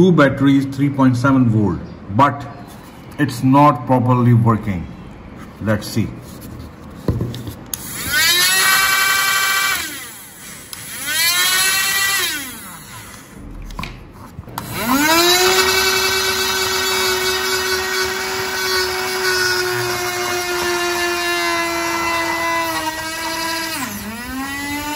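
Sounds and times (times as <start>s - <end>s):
small motors whining: 7.7s - 13.4s, 14.5s - 24.9s.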